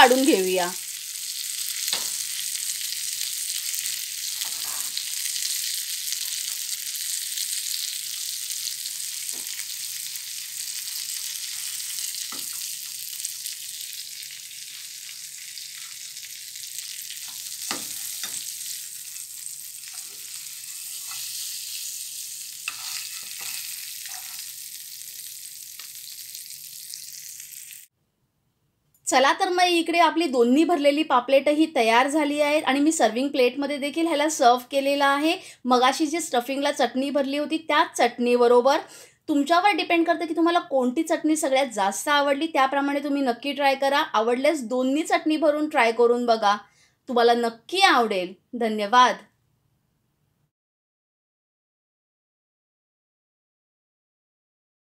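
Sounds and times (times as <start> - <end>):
oil sizzling in a frying pan: 0.0 - 27.9.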